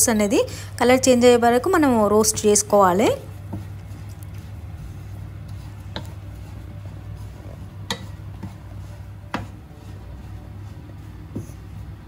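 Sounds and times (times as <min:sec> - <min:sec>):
spoon stirring oats in pan: 0:02.2 - 0:12.0
spoon tapping on pan: 0:07.8 - 0:08.2.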